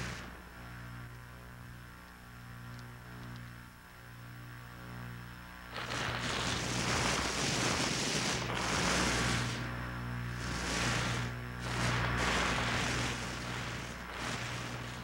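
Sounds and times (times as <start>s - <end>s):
loud hissing rush of noise: 0.0s - 0.4s, 5.7s - 15.0s
low buzzing electric hum: 0.0s - 15.0s.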